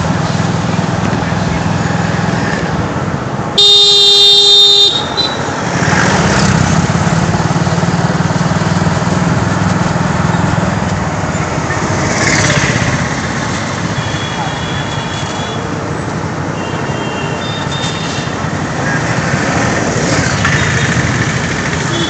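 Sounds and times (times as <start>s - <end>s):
traffic noise: 0.0s - 22.0s
loud horn blast: 3.6s - 5.4s
motorcycle engine running: 19.2s - 22.0s.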